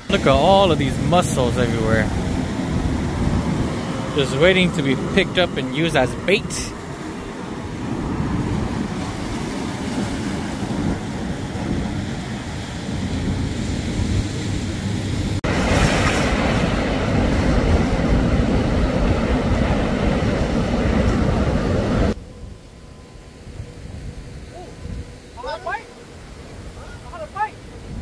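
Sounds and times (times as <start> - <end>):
surf breaking over rocks: 0.0 - 22.2
wind on microphone: 0.0 - 28.0.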